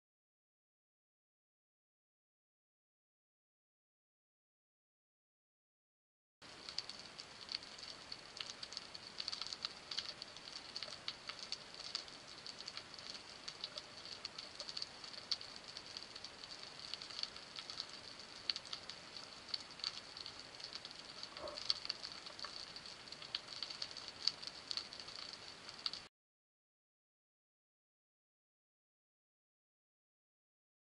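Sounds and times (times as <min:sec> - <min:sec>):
underwater clicks and snaps: 0:06.7 - 0:26.1.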